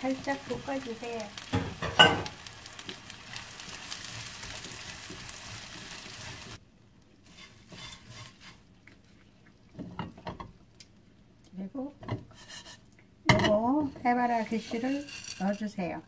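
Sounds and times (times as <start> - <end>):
shrimp sizzling in oil: 0.0 - 6.6, 7.2 - 8.6, 14.3 - 15.8
spatula scraping a pan: 7.2 - 8.7, 12.2 - 12.9, 13.8 - 15.8.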